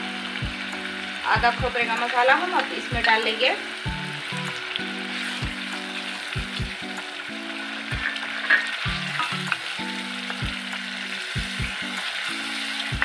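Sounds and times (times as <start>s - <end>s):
paste sizzling in hot oil: 0.0s - 13.0s.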